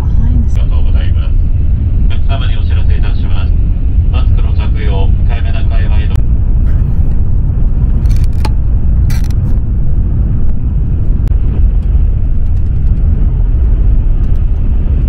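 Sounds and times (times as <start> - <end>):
train cabin low rumble: 0.0 - 15.0.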